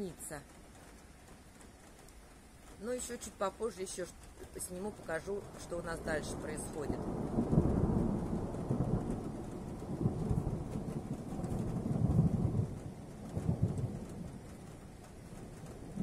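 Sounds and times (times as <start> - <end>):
steady rain: 0.0 - 16.0
distant thunder rolling: 3.9 - 16.0.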